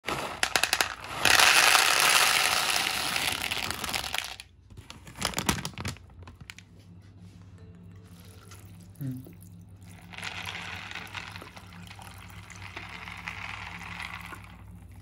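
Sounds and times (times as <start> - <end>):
chickpeas rattling into a bowl: 0.1 - 4.4, 9.9 - 14.9.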